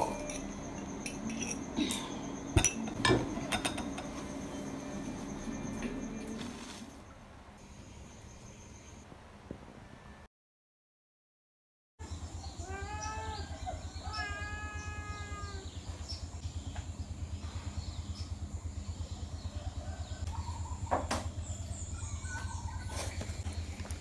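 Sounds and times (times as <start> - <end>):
steady low hum: 0.0 - 10.2, 13.4 - 24.0
animal calling in drawn-out cries: 12.6 - 15.8.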